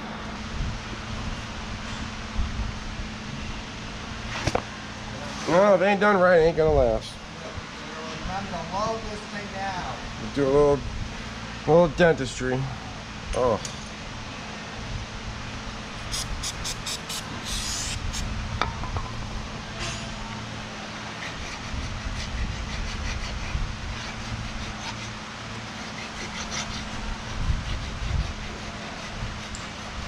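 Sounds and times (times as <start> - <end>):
steady low hum: 0.0 - 30.0
hand file scraping metal: 21.0 - 30.0.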